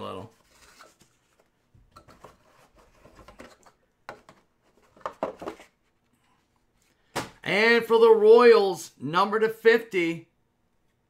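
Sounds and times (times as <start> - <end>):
cards rustling and scraping: 0.2 - 7.0.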